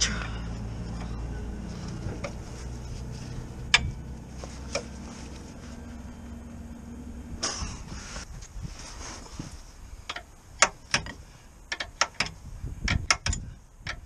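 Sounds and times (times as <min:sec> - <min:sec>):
steady low hum: 0:00.0 - 0:14.0
metallic clicks and taps of tools: 0:10.1 - 0:14.0.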